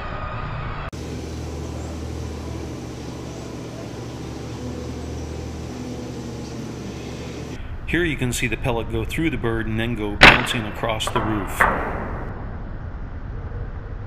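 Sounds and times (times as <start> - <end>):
motor humming: 1.0 - 7.6.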